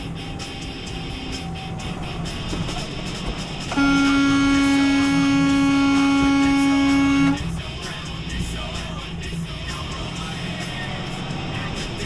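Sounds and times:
road noise in truck cab: 0:00.0 - 0:12.0
truck horn long blast: 0:03.7 - 0:07.6.

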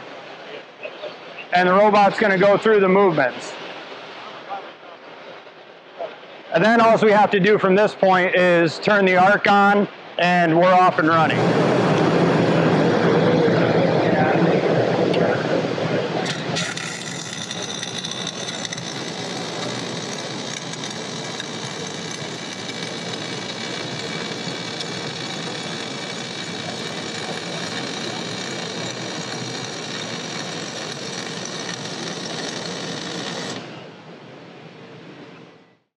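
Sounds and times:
welding arc hissing: 0:16.2 - 0:33.7.

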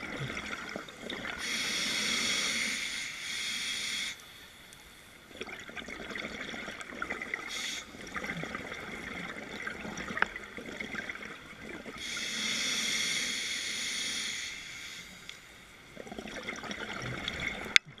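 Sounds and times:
hissing regulator inhalation: 0:01.4 - 0:04.4, 0:07.5 - 0:08.0, 0:12.0 - 0:15.4.

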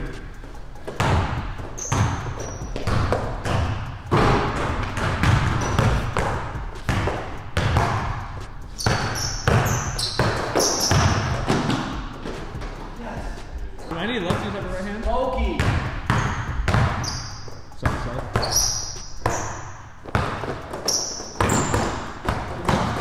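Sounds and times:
sneaker squeaks: 0:00.1 - 0:03.8, 0:05.2 - 0:06.2, 0:07.7 - 0:12.5, 0:15.4 - 0:23.0
basketball bouncing on wooden floor: 0:00.9 - 0:12.8, 0:15.4 - 0:23.0.

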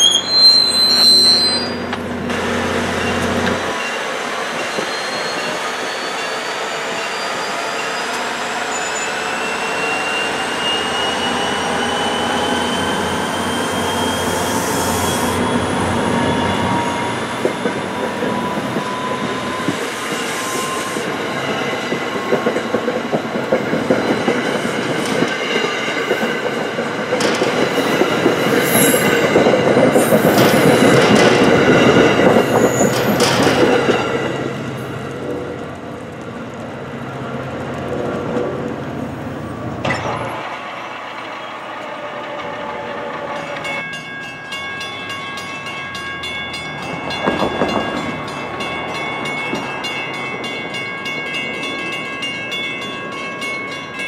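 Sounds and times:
train coaches rolling past: 0:00.0 - 0:54.0
wheels clacking over rail joints: 0:21.0 - 0:53.7.

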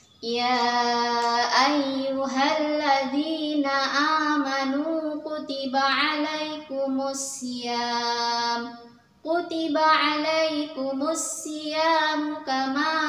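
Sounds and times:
woman chanting melodic recitation: 0:00.0 - 0:13.0.

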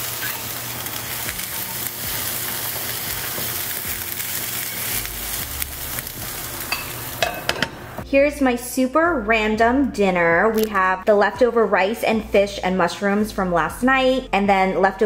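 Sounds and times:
utensil scraping skillet: 0:00.0 - 0:05.2
food sizzling in a skillet: 0:00.0 - 0:08.0.

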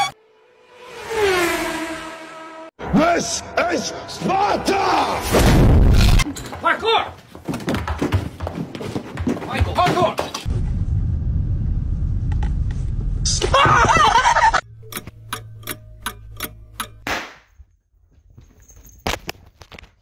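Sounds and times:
low hum: 0:10.5 - 0:13.6
sharp crack: 0:17.0 - 0:17.5.

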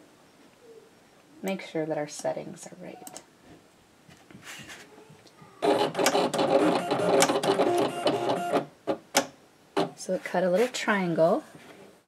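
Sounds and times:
vinyl cutter motors running: 0:05.6 - 0:08.7.

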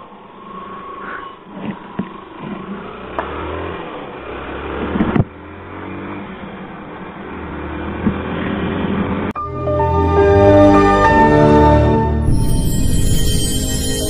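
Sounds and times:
motorcycle engine revving: 0:00.0 - 0:09.3.

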